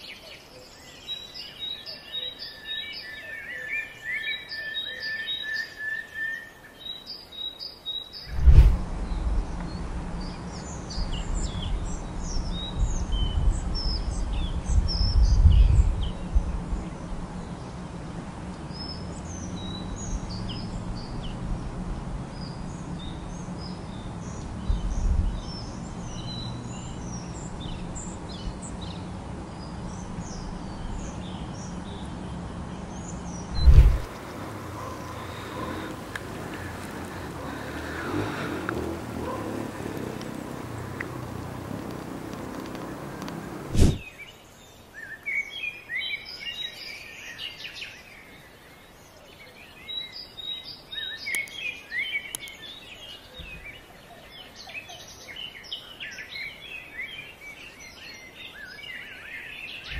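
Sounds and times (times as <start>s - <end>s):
birds chirping: 0.0s - 59.9s
outdoor rushing background: 8.2s - 13.0s, 33.2s - 44.1s
low rumbles: 8.2s - 22.4s, 33.2s - 44.0s.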